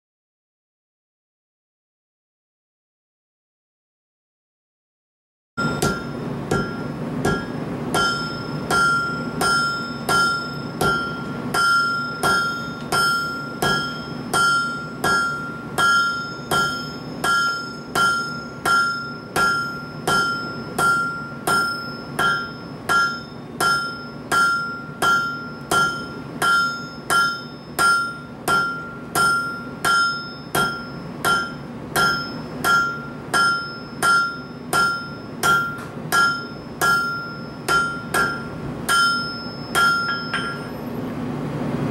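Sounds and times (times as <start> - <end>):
hammer striking hot bar on anvil: 5.6 - 40.8
anvil ringing: 5.6 - 40.9.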